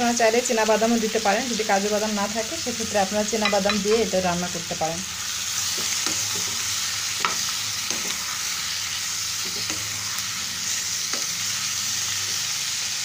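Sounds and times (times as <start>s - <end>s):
vegetables sizzling in a pan: 0.0s - 13.0s
spatula knocking and scraping pan: 3.4s - 4.1s.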